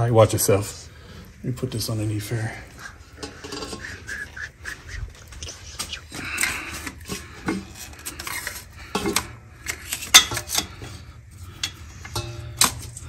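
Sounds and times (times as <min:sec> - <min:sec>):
metal drain pan clinking: 0:08.9 - 0:10.8, 0:11.5 - 0:13.0.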